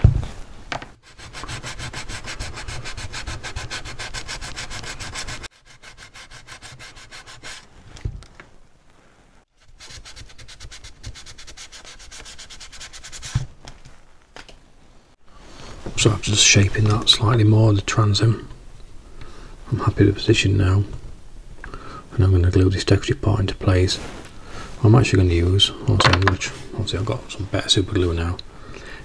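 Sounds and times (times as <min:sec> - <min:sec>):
sandpaper rubbing on wood: 0:01.0 - 0:07.8, 0:09.6 - 0:13.5.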